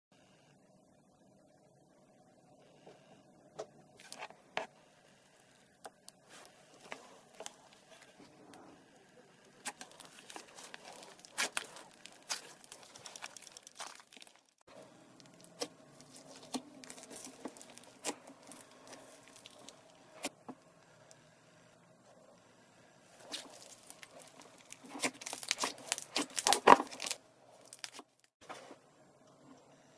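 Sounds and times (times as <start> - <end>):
slime squishing and popping: 9.6 - 14.6, 23.2 - 28.0.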